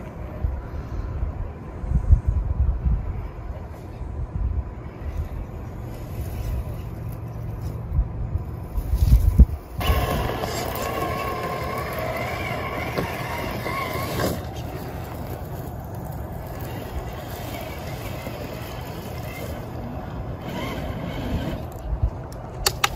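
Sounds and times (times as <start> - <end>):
electric motor and gearbox whining: 8.8 - 22.0.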